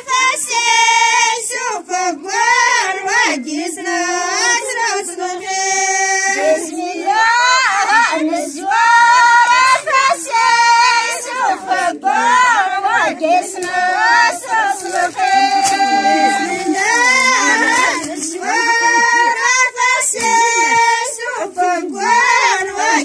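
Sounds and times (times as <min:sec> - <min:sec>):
women singing unaccompanied: 0:00.0 - 0:23.0.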